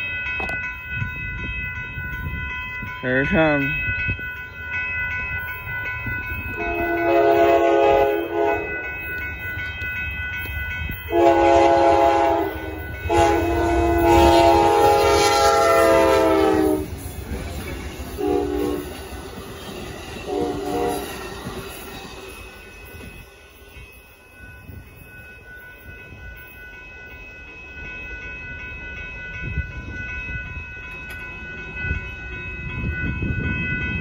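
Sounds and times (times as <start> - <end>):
crossing bell ringing: 0.0 - 34.0
train rumbling: 0.0 - 34.0
locomotive air horn blasts: 6.6 - 8.8, 11.1 - 16.9, 18.2 - 18.9, 20.3 - 21.2.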